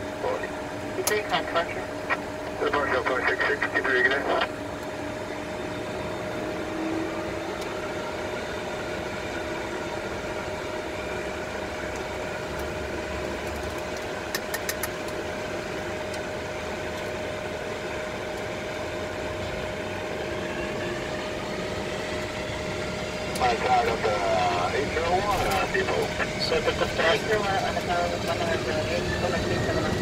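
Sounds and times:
jet engines idling: 0:00.0 - 0:30.0
steady whine: 0:00.0 - 0:30.0
quick clicks: 0:13.7 - 0:15.0.

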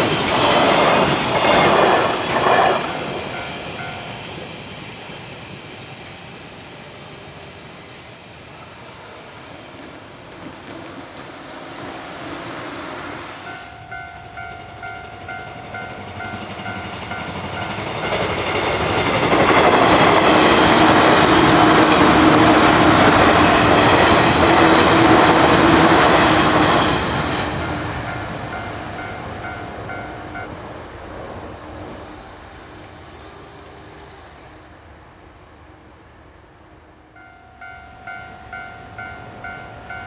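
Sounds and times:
train wheels clacking on rails: 0:00.0 - 0:05.7, 0:09.8 - 0:30.6
train passing: 0:00.0 - 0:40.0
level crossing alarm dinging: 0:13.5 - 0:18.3, 0:37.2 - 0:40.0.

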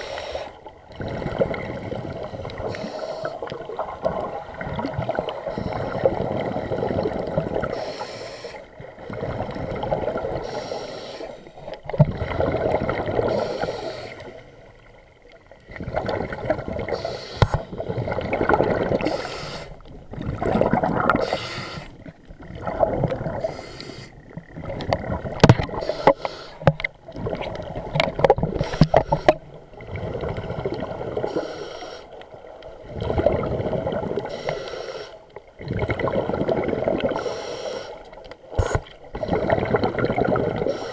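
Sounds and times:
regulator hissing inhale: 0:00.0 - 0:00.6, 0:02.6 - 0:03.4, 0:07.7 - 0:08.7, 0:10.4 - 0:11.6, 0:13.3 - 0:14.4, 0:16.9 - 0:17.7, 0:19.0 - 0:19.9, 0:21.2 - 0:22.0, 0:23.4 - 0:24.2, 0:25.8 - 0:26.7, 0:28.6 - 0:29.4, 0:31.3 - 0:32.2, 0:34.3 - 0:35.3, 0:37.2 - 0:38.1, 0:40.7 - 0:40.9.

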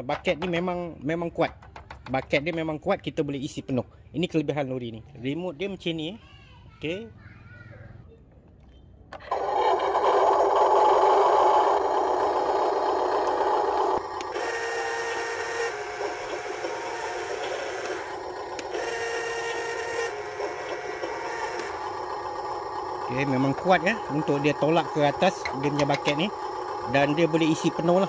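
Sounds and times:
toy truck mechanical noise: 0:08.7 - 0:28.0
electric ram whirring: 0:09.2 - 0:28.0.

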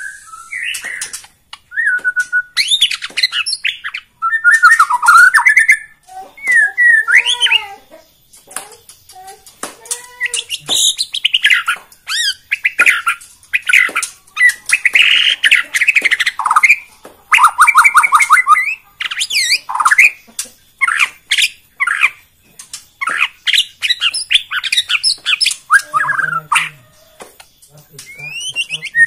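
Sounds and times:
songbird singing varied phrases: 0:00.0 - 0:22.3, 0:23.0 - 0:29.0.

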